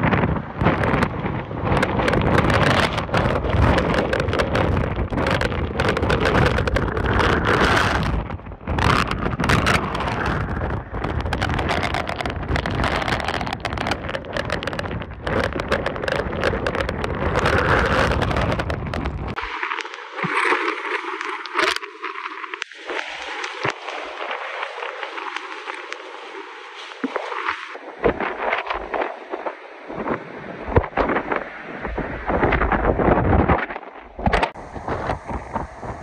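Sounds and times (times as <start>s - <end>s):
driving rain: 0.0s - 20.2s
hurricane wind gusts on microphone: 0.0s - 36.0s.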